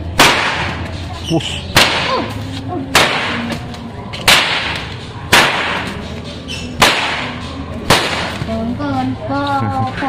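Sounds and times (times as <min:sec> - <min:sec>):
whip cracking: 0:00.2 - 0:00.9, 0:01.8 - 0:03.6, 0:04.2 - 0:06.0, 0:06.8 - 0:08.5.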